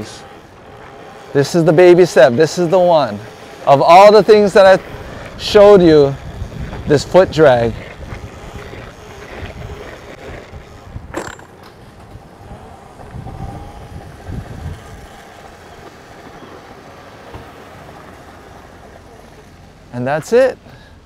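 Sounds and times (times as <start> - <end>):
wind buffeting microphone: 4.3 - 11.2, 11.8 - 15.9.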